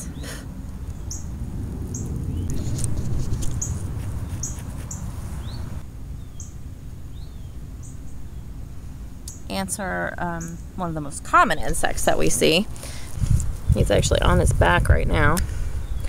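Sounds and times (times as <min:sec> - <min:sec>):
bird chirping: 0:00.0 - 0:08.6
camera handling rumble: 0:02.0 - 0:05.0.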